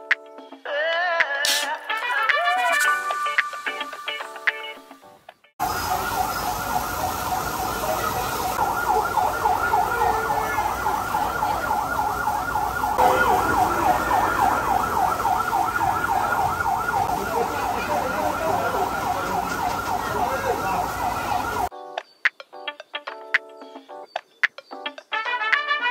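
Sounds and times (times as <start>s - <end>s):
crowd noise: 5.6s - 21.7s
siren yelping: 5.6s - 21.7s.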